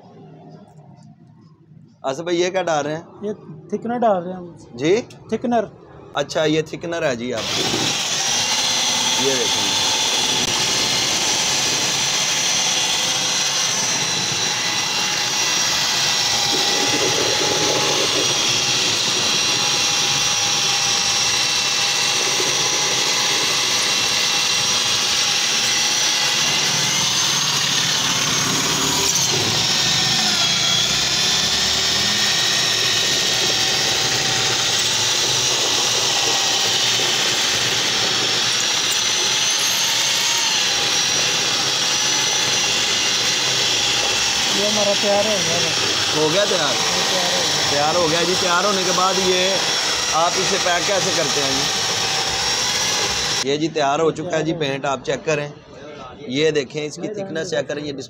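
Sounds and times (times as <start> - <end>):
electric drill mixing paint: 7.4 - 53.5.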